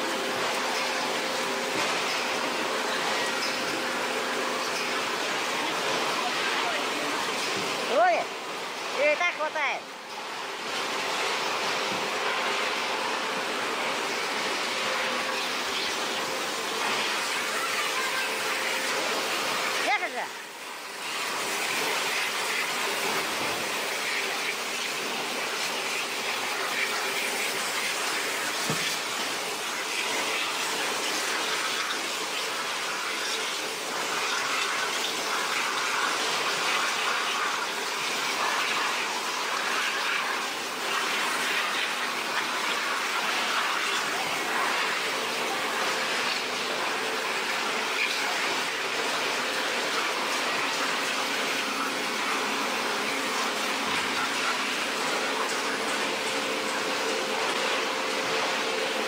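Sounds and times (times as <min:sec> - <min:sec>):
rushing running water: 0:00.0 - 0:59.0.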